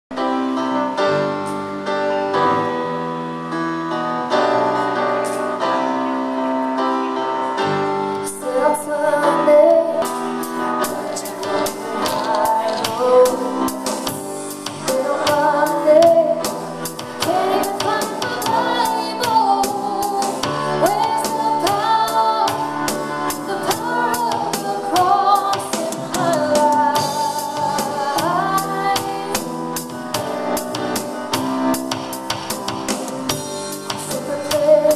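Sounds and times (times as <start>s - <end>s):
keyboard chords: 0.1s - 34.9s
drums: 7.6s - 34.9s
woman singing: 8.2s - 30.0s, 33.9s - 34.9s.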